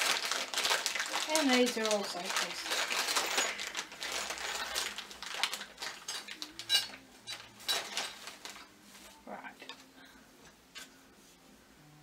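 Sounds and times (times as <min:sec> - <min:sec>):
plastic bag crinkling: 0:00.0 - 0:08.7
plastic parts clinking: 0:00.0 - 0:08.7.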